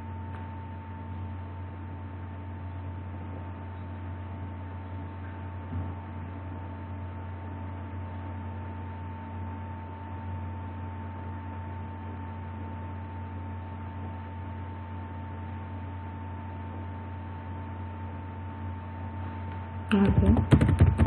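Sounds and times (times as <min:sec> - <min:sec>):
low electrical hum: 0:00.0 - 0:21.0.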